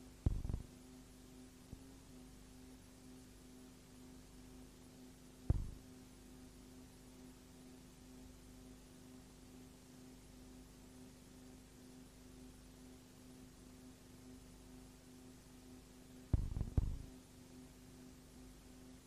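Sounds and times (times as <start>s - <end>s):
low electrical hum: 0.0s - 19.0s
dull thump: 0.3s - 0.7s, 5.5s - 5.8s, 16.4s - 17.1s.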